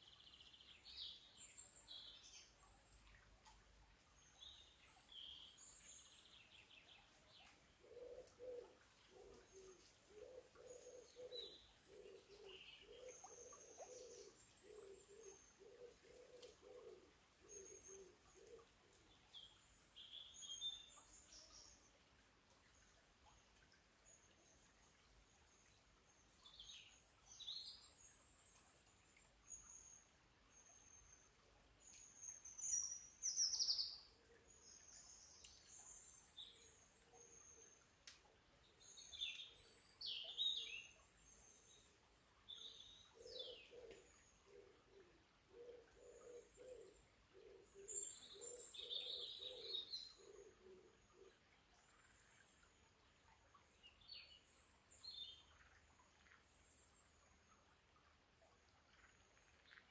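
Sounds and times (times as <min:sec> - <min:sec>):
dove cooing: 0:07.8 - 0:18.7, 0:43.2 - 0:51.3
small birds chirping and singing: 0:25.5 - 0:52.9, 0:53.6 - 0:57.5.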